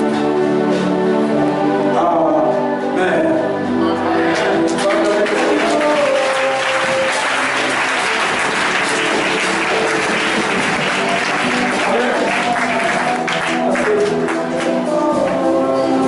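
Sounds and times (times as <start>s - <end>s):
live church music: 0.0s - 16.0s
congregation clapping: 4.2s - 15.6s.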